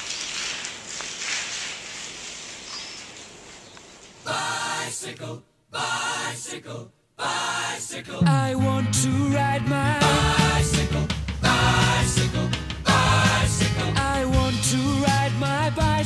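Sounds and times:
steady camera movement noise: 0:00.0 - 0:04.4
choral singing: 0:04.2 - 0:16.0.

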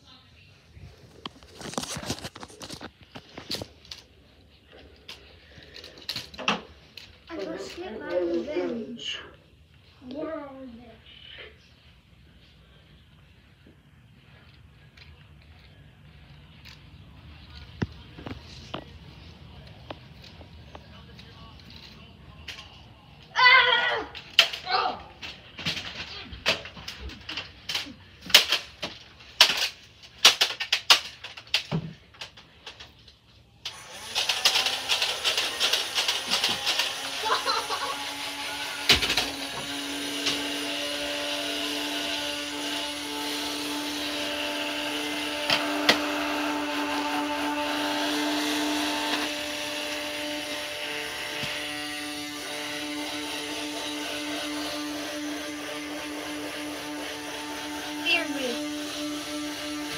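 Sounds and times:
plastic toys clacking: 0:05.0 - 0:08.2, 0:25.2 - 0:33.1, 0:34.2 - 0:37.2
small motor rattling: 0:33.7 - 0:59.9
toy lightsaber humming: 0:34.2 - 0:44.2, 0:48.7 - 0:59.9.

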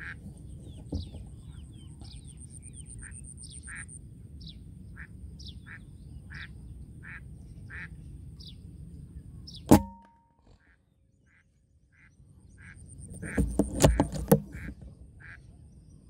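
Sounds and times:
birds calling: 0:00.0 - 0:16.0
air rifle shot: 0:09.7 - 0:10.2.

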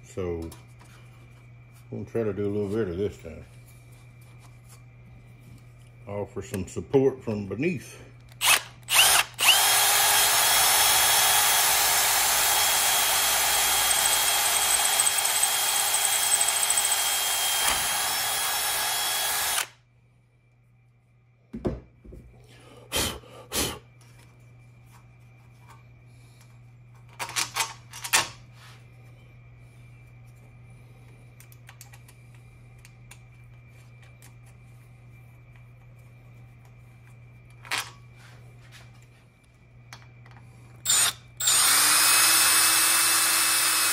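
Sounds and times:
power drill whining through metal: 0:08.4 - 0:19.8, 0:40.8 - 0:43.9.

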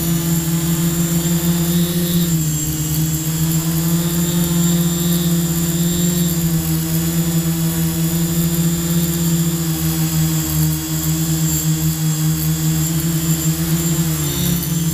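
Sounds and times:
drone motors and propellers: 0:00.0 - 0:14.9.

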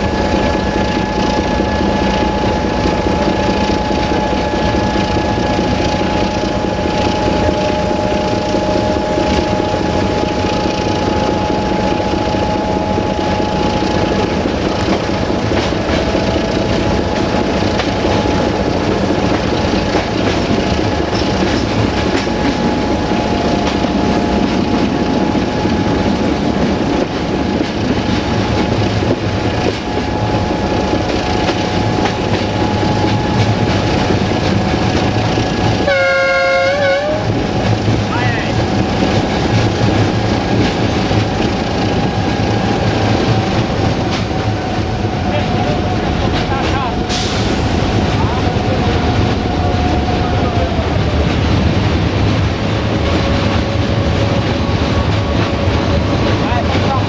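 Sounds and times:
train running on track: 0:00.0 - 0:57.0
train horn blast: 0:35.7 - 0:37.6.

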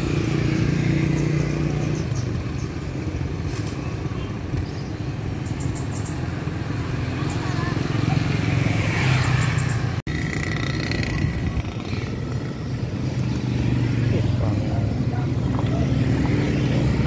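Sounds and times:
street traffic: 0:00.0 - 0:17.0
motorcycle engine running: 0:09.6 - 0:17.0.

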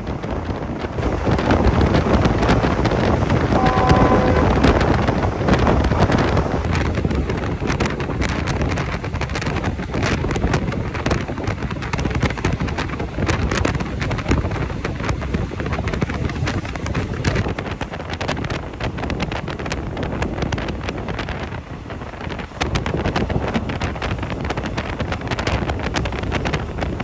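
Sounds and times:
train rumbling and clattering: 0:00.0 - 0:27.0
wind buffeting microphone: 0:00.0 - 0:27.0.

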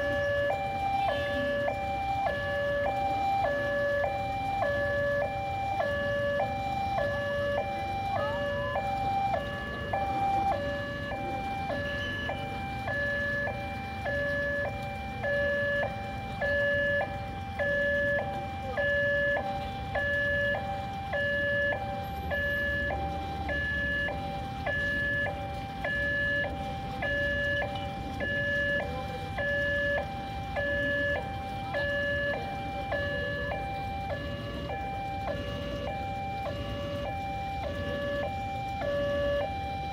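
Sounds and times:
level-crossing two-tone alarm: 0:00.0 - 0:39.9.

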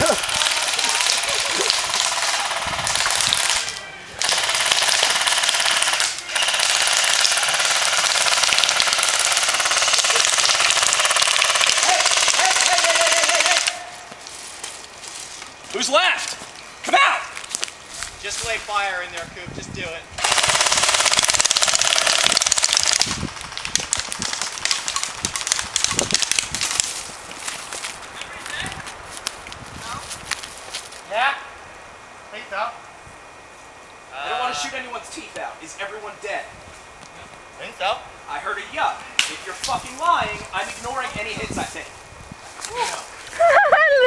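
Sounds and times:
airsoft guns firing full auto: 0:00.0 - 0:13.8, 0:20.2 - 0:23.1.

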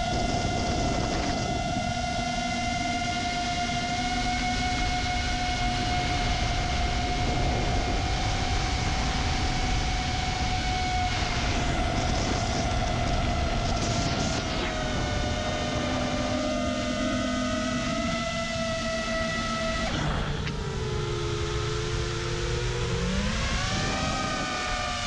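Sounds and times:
drone motors whining: 0:00.0 - 0:25.0
low rumble: 0:04.8 - 0:24.5.

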